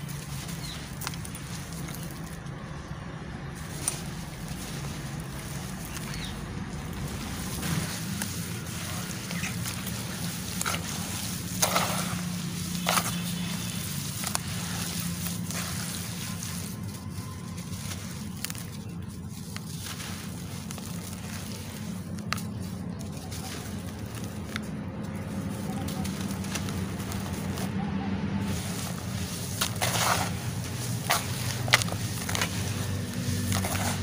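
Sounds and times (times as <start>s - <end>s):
charcoal crumbling: 0.0s - 34.0s
water sloshing and splashing: 0.0s - 34.0s.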